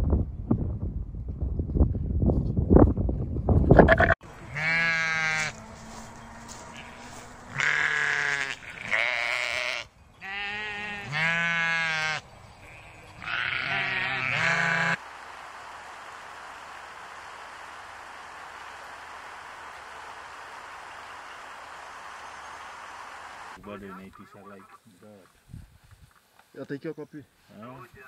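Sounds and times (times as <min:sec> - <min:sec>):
wind buffeting microphone: 0:00.0 - 0:04.2, 0:25.4 - 0:26.1
sheep and goats bleating: 0:04.3 - 0:15.0
steady hiss: 0:14.6 - 0:23.6.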